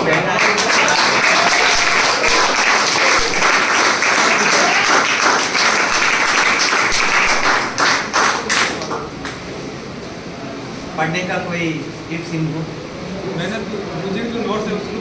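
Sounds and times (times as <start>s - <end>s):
roomful of people applauding: 0.0s - 9.5s.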